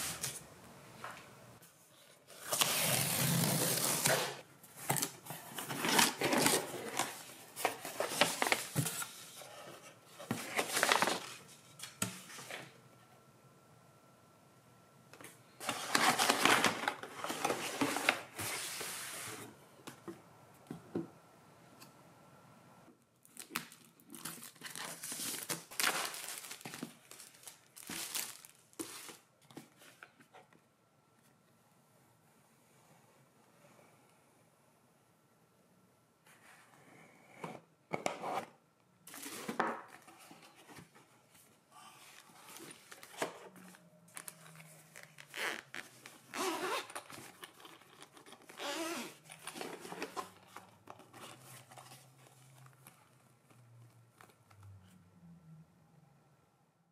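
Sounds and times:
plastic wrapping tearing and crinkling: 23.2 - 29.1.

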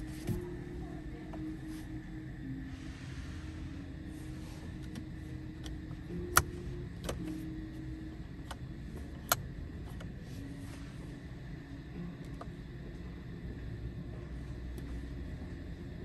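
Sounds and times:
low steady hum: 0.0 - 16.0
sharp control clicks: 4.9 - 7.3, 8.4 - 10.1.

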